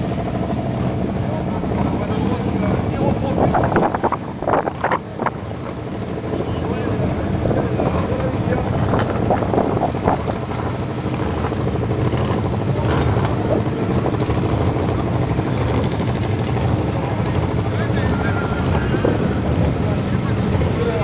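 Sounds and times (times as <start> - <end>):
car engine idling: 0.0 - 21.0
faint voices: 0.1 - 21.0.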